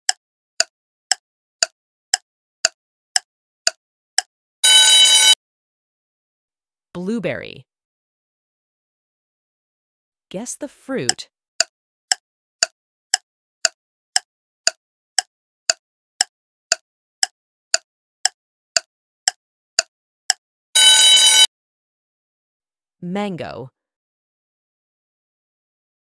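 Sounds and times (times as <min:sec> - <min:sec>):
clock ticking: 0:00.1 - 0:04.3, 0:11.1 - 0:20.4
loud buzzer: 0:04.6 - 0:05.4, 0:20.8 - 0:21.5.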